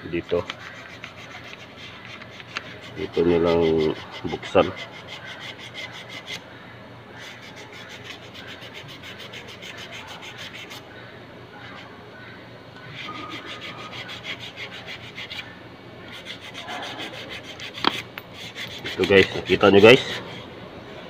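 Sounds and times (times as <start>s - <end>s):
screwdriver rasping on metal: 0.2s - 6.4s, 16.1s - 20.4s.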